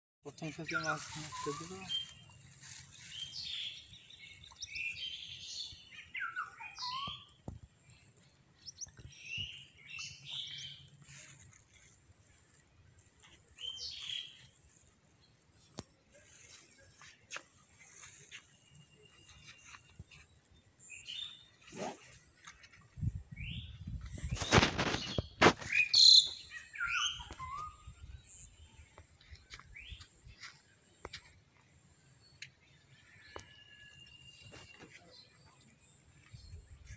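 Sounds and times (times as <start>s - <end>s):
birds chirping: 0.3s - 36.9s
brief rustling: 24.1s - 26.0s.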